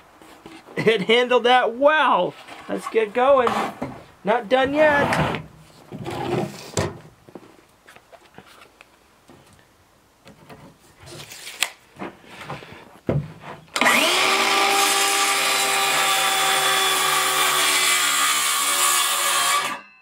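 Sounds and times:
circular saw cutting wood: 0:13.8 - 0:19.8.

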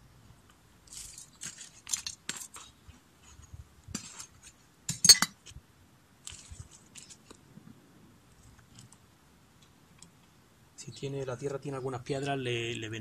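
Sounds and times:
trowel scraping stony soil: 0:00.9 - 0:04.6
trowel clinking: 0:04.9 - 0:05.4.

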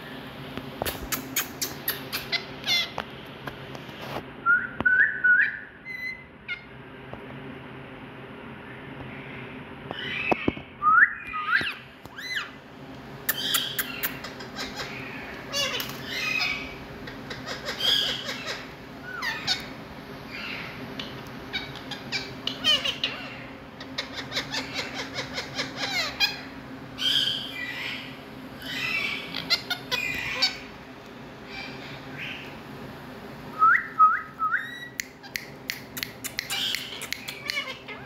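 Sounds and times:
parrots squawking and chattering: 0:00.8 - 0:03.1, 0:05.5 - 0:06.8, 0:09.1 - 0:10.7, 0:11.3 - 0:12.6, 0:13.2 - 0:30.8, 0:31.4 - 0:32.6, 0:34.6 - 0:38.0.

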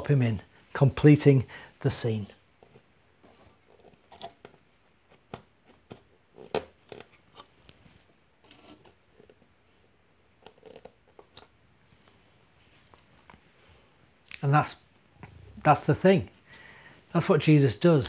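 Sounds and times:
cardboard figures tapping and scraping: 0:02.6 - 0:09.5.

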